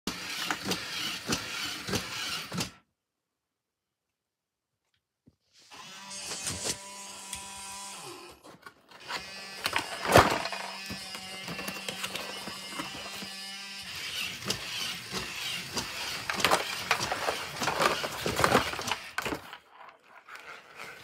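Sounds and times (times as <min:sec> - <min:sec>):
toy motors whirring: 0:00.1 - 0:02.8, 0:05.6 - 0:21.0.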